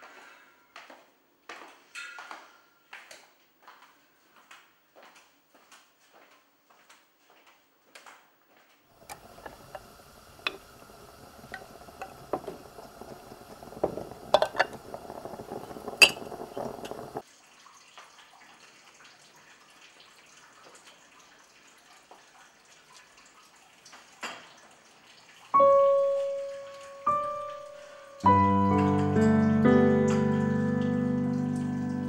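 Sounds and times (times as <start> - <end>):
moka pot bubbling and sputtering: 9.0 - 17.2.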